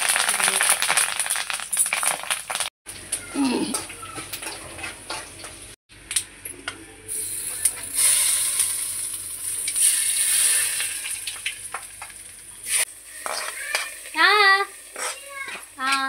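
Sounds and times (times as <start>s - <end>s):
spices sizzling in hot oil: 0.0s - 6.1s, 7.1s - 16.0s.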